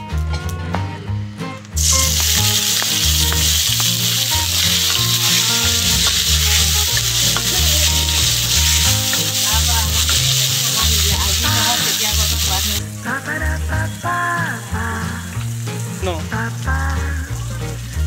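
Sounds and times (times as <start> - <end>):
faint sizzle of seeds in oil: 1.8 - 18.0
tomatoes sizzling in hot oil: 1.8 - 18.0.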